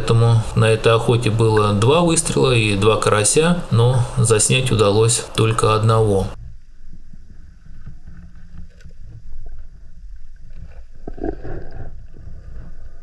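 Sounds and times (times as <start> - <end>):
water swishing: 0.0 - 13.0
underwater water rumble: 6.4 - 13.0.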